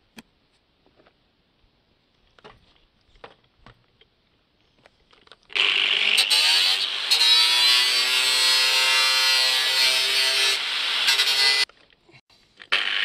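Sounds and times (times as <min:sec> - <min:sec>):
angle grinder cutting thin metal: 0:05.6 - 0:11.7.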